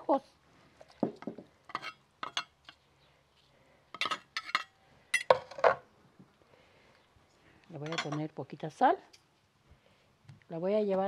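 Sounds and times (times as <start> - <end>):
spoon clinking on plate and jar: 7.9 - 8.2.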